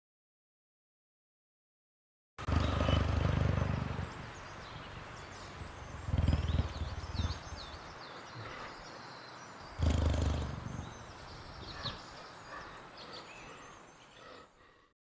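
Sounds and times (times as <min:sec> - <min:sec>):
big cat growl: 0:02.4 - 0:04.4, 0:05.8 - 0:07.8, 0:09.8 - 0:12.8
birds chirping: 0:02.4 - 0:14.9.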